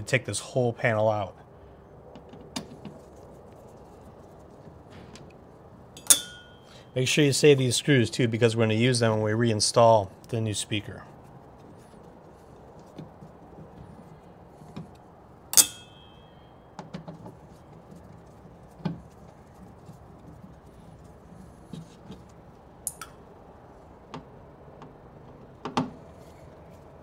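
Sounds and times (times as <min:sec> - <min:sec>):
sharp metallic clink: 0:06.0 - 0:06.9, 0:15.5 - 0:16.5.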